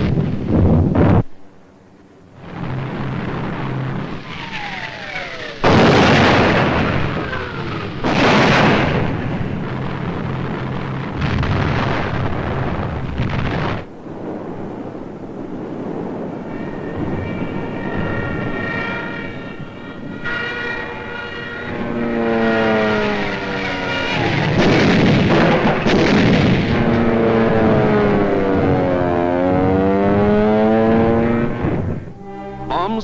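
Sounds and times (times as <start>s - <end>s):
aircraft engines droning: 0.0s - 13.1s, 13.8s - 33.0s
heavy explosions: 2.3s - 33.0s
high siren wail: 2.4s - 11.9s, 16.2s - 33.0s
falling bomb whistles: 3.6s - 9.6s, 16.4s - 33.0s.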